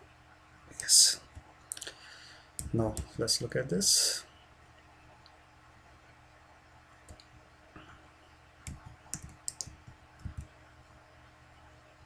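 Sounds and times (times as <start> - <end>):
keyboard and mouse clicks: 2.6 - 3.2, 7.1 - 7.3, 8.6 - 10.5.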